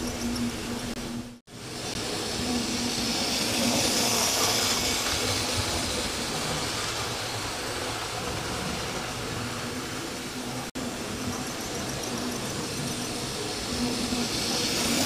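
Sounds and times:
model train wheels rattling on rails: 1.8 - 9.8, 11.0 - 15.0.

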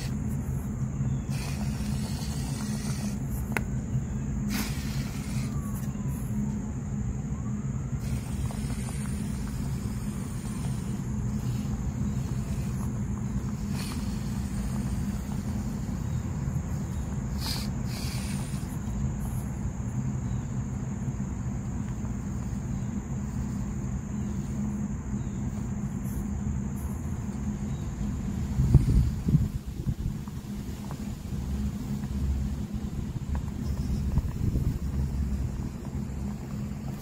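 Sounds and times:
rc car motor whine: 0.0 - 20.5.

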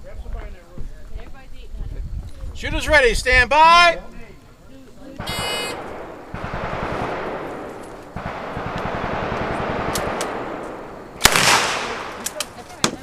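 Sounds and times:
submachine gun firing bursts: 5.2 - 12.6
sharp gunshot crack: 5.2 - 13.0.

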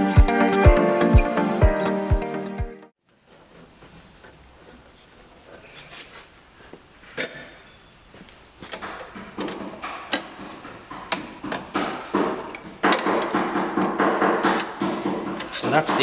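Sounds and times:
background music: 0.0 - 2.9, 12.3 - 16.0
sharp ringing metal clink: 7.2 - 7.9.

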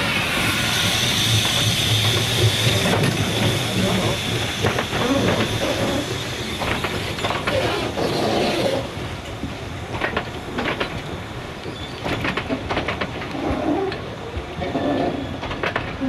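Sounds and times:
steam hiss: 0.0 - 12.3
steam train running: 0.0 - 16.0
wheels clicking over rail joints: 1.4 - 16.0.

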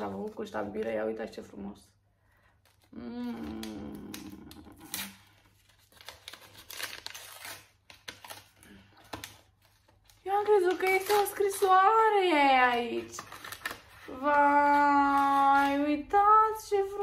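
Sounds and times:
paper crackling and rustling: 4.8 - 16.1.

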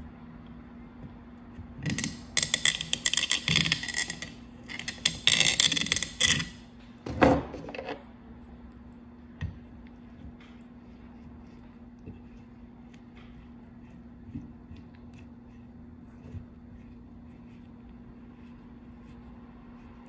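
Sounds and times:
knife scraping coconut shell: 1.9 - 6.6.

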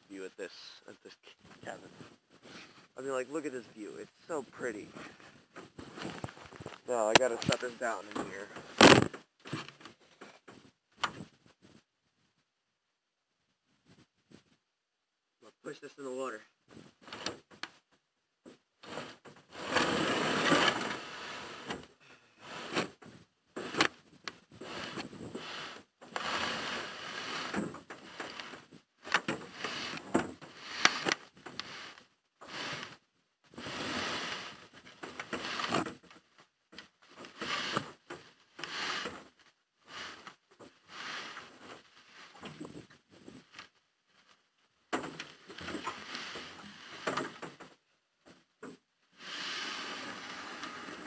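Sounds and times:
boat hull scraping over ground: 1.6 - 9.7, 18.8 - 21.7, 24.6 - 36.0, 45.4 - 47.6, 49.2 - 51.0.

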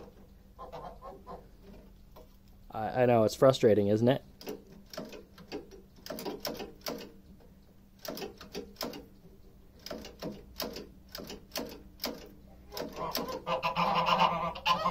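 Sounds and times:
geese honking: 0.5 - 1.5, 12.8 - 14.9.

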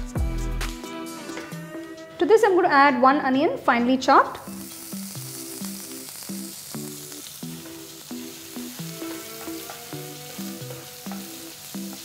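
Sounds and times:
soft background music: 0.0 - 12.0
onion sizzling in oil: 4.2 - 12.0.

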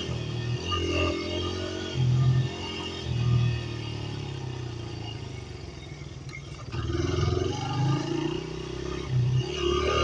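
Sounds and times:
dirt bike engine revving: 0.0 - 4.5, 6.5 - 10.0.

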